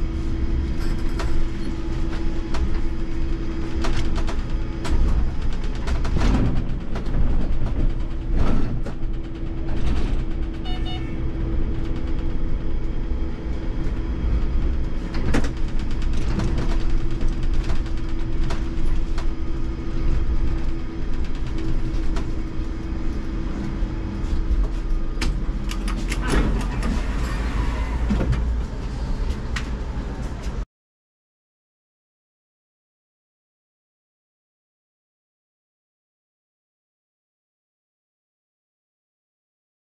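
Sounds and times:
trolleybus hum and rumble: 0.0 - 30.7.

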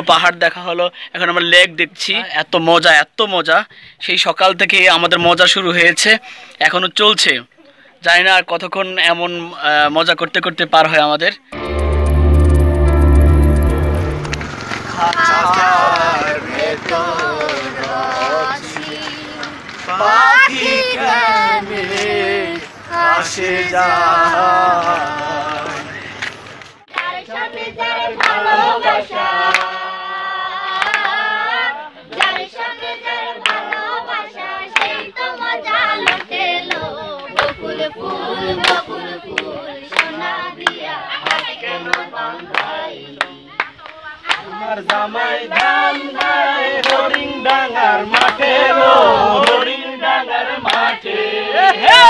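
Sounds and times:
group singing together: 11.6 - 52.0
people clapping in rhythm: 13.8 - 23.6, 24.2 - 52.0.

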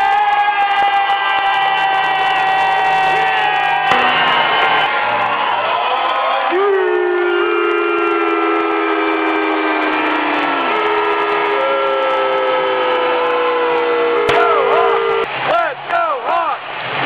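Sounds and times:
arena crowd din: 0.0 - 17.0
long horn blasts: 12.9 - 15.3.

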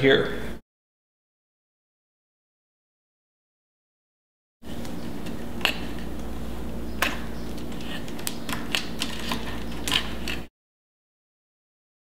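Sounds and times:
steady low hum: 4.6 - 10.5.

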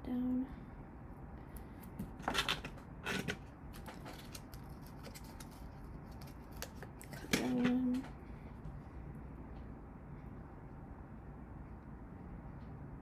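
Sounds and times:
make-up items clicking and clattering: 2.2 - 8.1.

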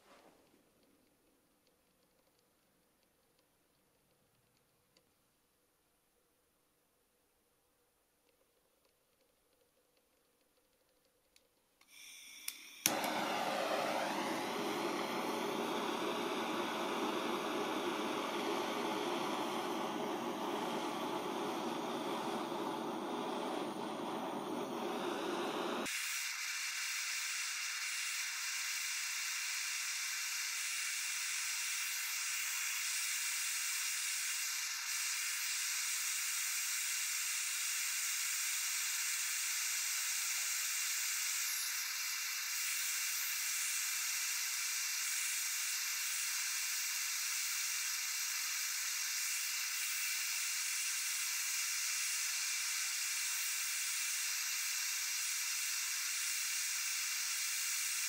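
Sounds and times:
gas torch flame hissing: 11.8 - 58.0.

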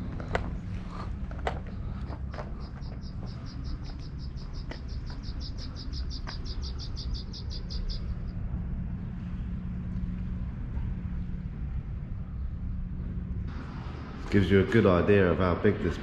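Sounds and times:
rapid high chirps: 2.6 - 8.3.

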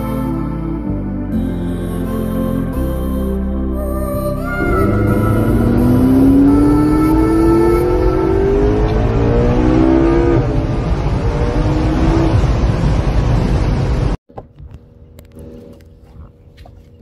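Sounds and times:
steady engine hum: 1.4 - 17.0
car engine revving: 4.6 - 14.1
road and wind noise: 4.6 - 17.0.

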